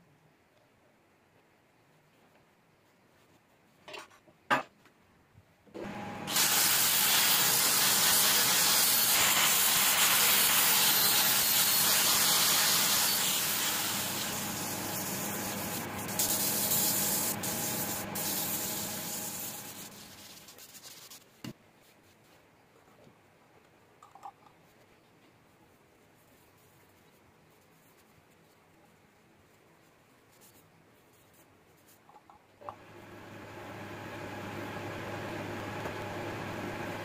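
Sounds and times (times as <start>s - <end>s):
sandpaper hissing on spinning wood: 6.3s - 21.2s
lathe hum: 12.7s - 20.1s.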